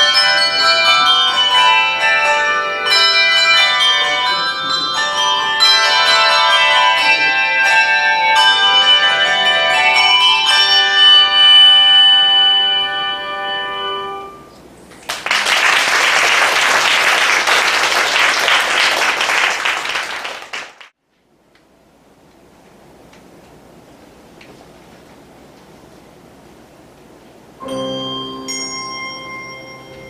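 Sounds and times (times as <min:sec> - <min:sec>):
handbell choir ringing chord: 0:00.0 - 0:14.6, 0:27.6 - 0:30.0
audience applause: 0:14.9 - 0:20.9.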